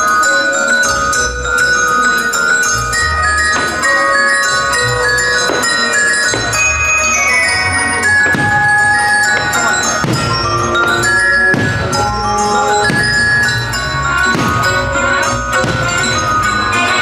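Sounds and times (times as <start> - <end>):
bells and glockenspiel melody: 0.0 - 17.0
sharp percussive hits: 3.4 - 17.0.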